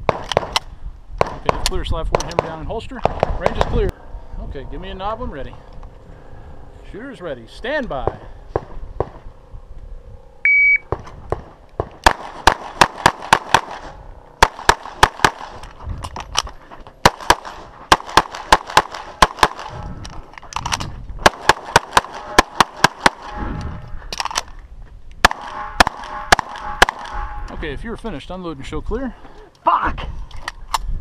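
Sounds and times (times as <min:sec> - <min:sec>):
pistol shots: 0:01.2 - 0:03.8, 0:10.9 - 0:15.7, 0:17.0 - 0:19.8, 0:21.2 - 0:23.4, 0:25.2 - 0:27.3.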